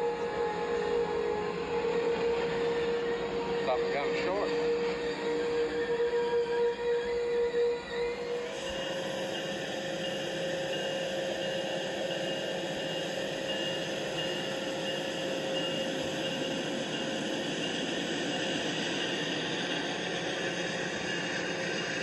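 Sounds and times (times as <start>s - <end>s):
high motor whine: 0.0s - 22.0s
toy train motor humming: 8.1s - 22.0s.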